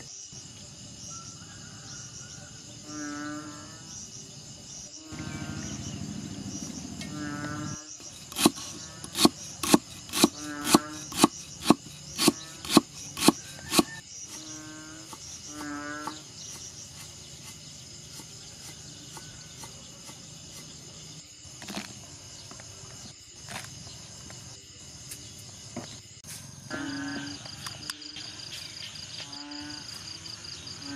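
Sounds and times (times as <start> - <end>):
high insect drone: 0.0 - 30.9
cleaver chopping on wooden board: 8.2 - 14.0.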